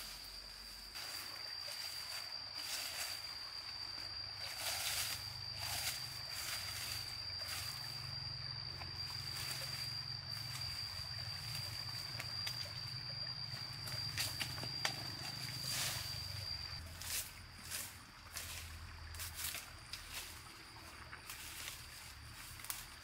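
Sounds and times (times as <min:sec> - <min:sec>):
steady high-pitched tone: 0:00.0 - 0:17.3
low hum: 0:00.0 - 0:22.7.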